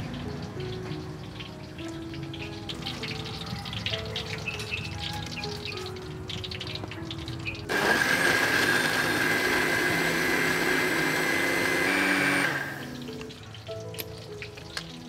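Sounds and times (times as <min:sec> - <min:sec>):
soft background music: 0:00.0 - 0:15.0
blender whining: 0:07.7 - 0:12.9.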